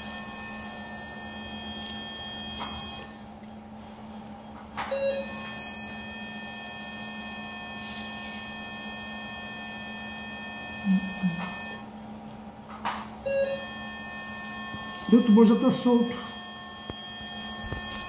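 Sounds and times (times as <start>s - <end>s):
high thin whining tones: 0.0s - 12.6s, 13.2s - 18.0s
electrical hum: 0.0s - 18.0s.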